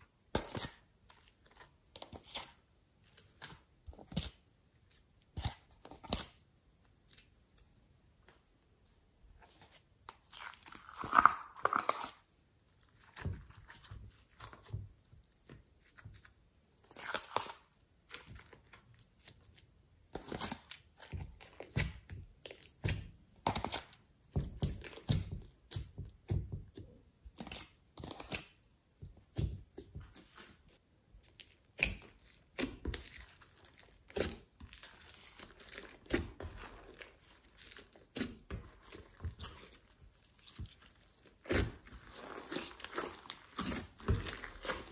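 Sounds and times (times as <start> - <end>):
clay and slime squished by hand: 0.0 - 8.3, 9.6 - 44.9.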